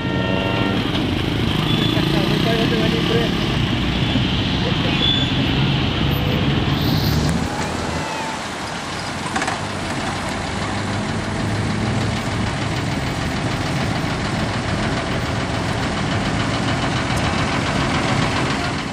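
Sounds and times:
engine running steadily: 0:09.0 - 0:18.9.

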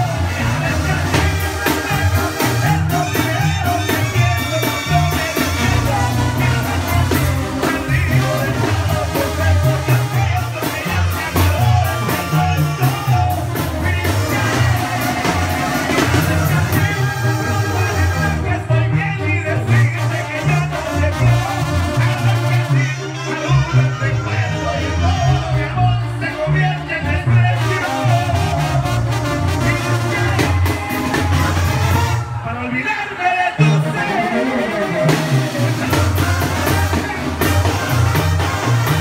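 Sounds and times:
steady drum beat: 0:00.0 - 0:19.0, 0:27.5 - 0:32.4, 0:34.9 - 0:39.0
brass band playing: 0:00.0 - 0:39.0
man singing: 0:00.0 - 0:39.0
tuba bass line: 0:00.0 - 0:39.0.

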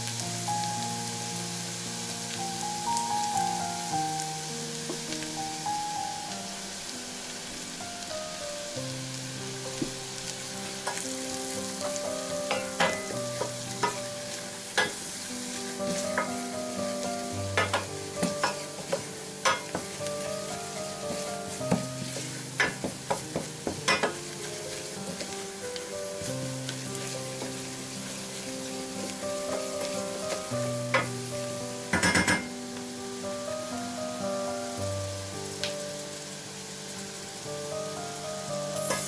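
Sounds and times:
roux sizzling in a saucepan: 0:00.0 - 0:39.0
wooden spoon scraping a pan: 0:10.7 - 0:25.5, 0:38.8 - 0:39.0.

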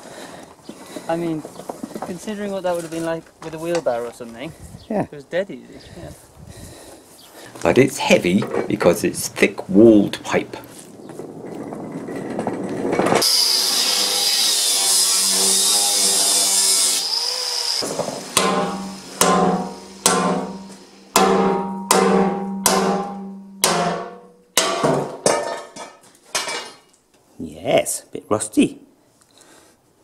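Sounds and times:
hammer striking steel pipe: 0:17.8 - 0:26.8.

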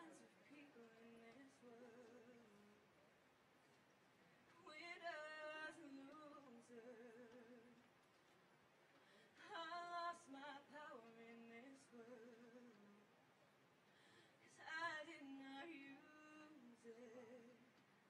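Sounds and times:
woman singing softly: 0:00.0 - 0:02.9, 0:04.5 - 0:07.9, 0:09.3 - 0:13.2, 0:14.4 - 0:17.9.

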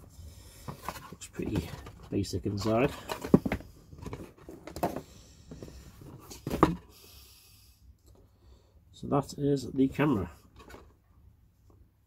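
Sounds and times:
cardboard box knocks and scrapes: 0:06.1 - 0:06.8.

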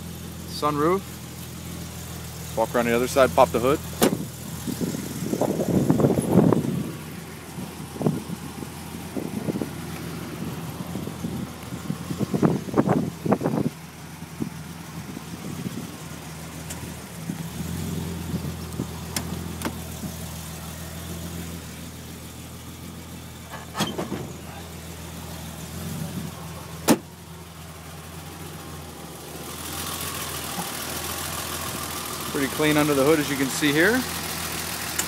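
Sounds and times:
car engine idling: 0:00.0 - 0:35.0
hood latch clicks and clunks: 0:03.9 - 0:04.3, 0:18.7 - 0:19.8, 0:23.5 - 0:24.4, 0:26.8 - 0:27.1.

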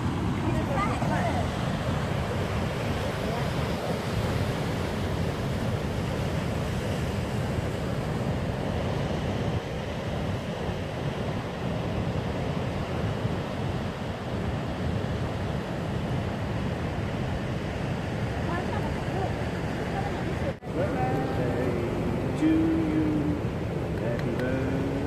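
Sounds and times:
surf breaking on rocks: 0:00.0 - 0:11.6.

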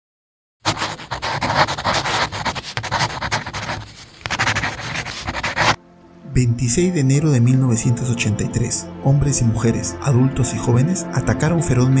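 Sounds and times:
marker scribbling on whiteboard: 0:00.7 - 0:05.8.

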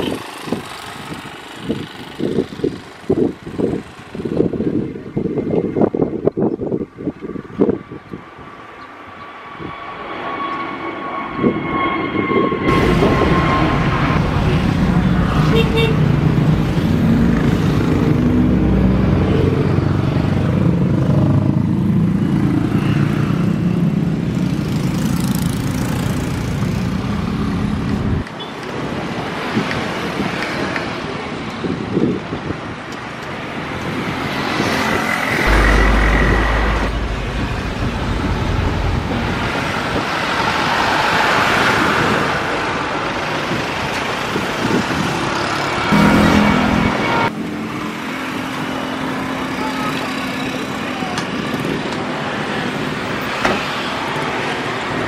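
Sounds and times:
jet engine whine: 0:00.0 - 0:31.0, 0:33.1 - 0:55.0
jet roar of airliner climbing: 0:00.0 - 0:49.6
jet engine rumble: 0:00.1 - 0:21.8, 0:35.3 - 0:41.0.

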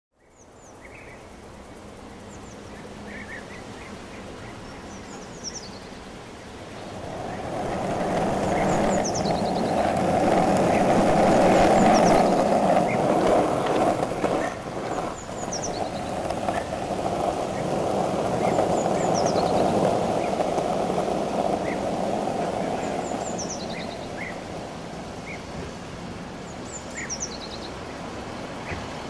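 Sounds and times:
skateboard wheels rolling on pavement: 0:00.6 - 0:29.0
small birds chirping: 0:02.2 - 0:24.5.

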